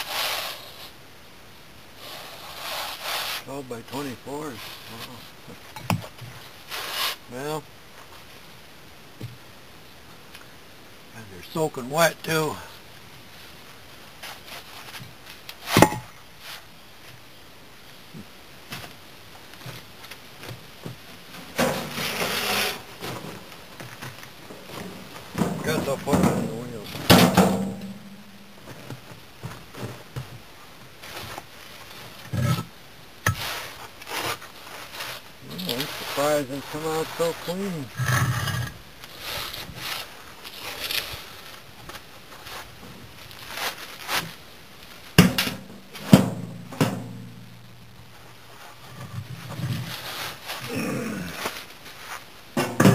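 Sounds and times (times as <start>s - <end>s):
brick slabs knocking on gravel: 20.5s - 30.4s, 52.6s - 52.9s
loud rough scraping: 21.5s - 23.4s, 33.3s - 41.5s.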